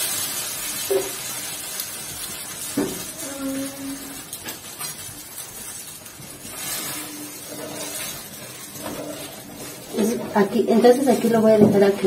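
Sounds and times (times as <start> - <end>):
salsa sizzling in hot oil: 0.0 - 12.0.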